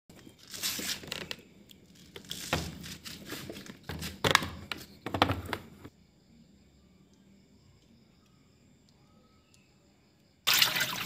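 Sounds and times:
rustling and crinkling of wires: 0.1 - 5.6.

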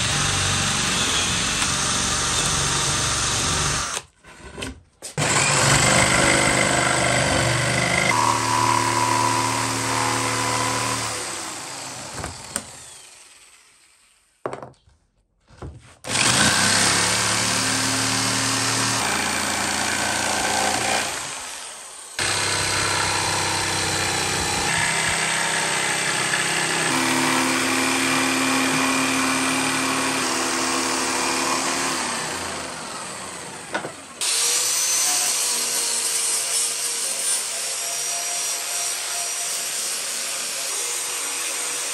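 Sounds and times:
electric drill boring wood: 0.0 - 4.1, 5.2 - 14.2, 16.1 - 41.9
jigsaw cutting wood: 0.0 - 4.2, 5.2 - 14.2, 16.0 - 41.9.

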